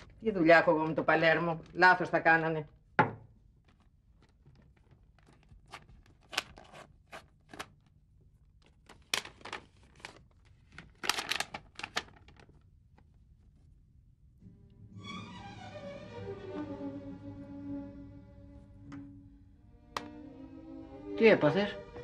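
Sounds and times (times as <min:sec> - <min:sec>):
paper tearing and rustling: 0:04.6 - 0:07.8, 0:08.7 - 0:12.6.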